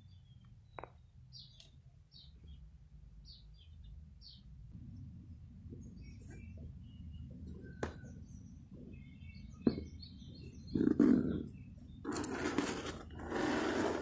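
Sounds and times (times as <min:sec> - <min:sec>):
birds chirping faintly: 0:00.0 - 0:14.0
objects scraping and rustling: 0:10.8 - 0:14.0.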